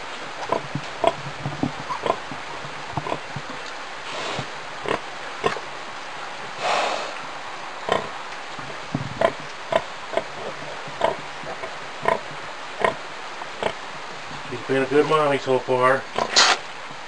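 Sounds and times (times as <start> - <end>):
piglets grunting and squeaking: 1.8 - 2.2, 9.2 - 13.0, 16.1 - 16.7
pig snorting: 1.9 - 2.2, 7.9 - 8.1, 9.2 - 13.0, 16.1 - 16.7.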